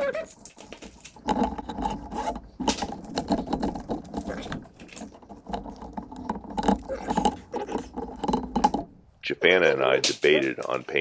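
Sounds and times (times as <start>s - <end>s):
metal cable rattling and clicking: 0.0s - 11.0s.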